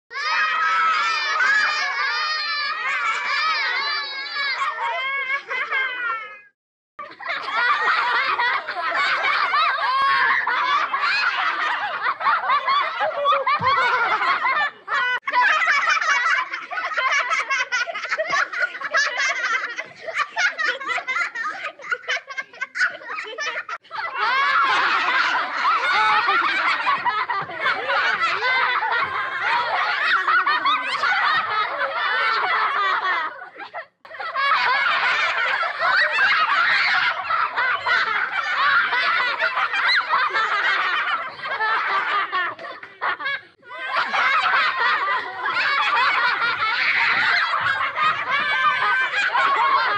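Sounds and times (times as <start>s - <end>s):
high-pitched laughter and giggling: 0.1s - 49.9s.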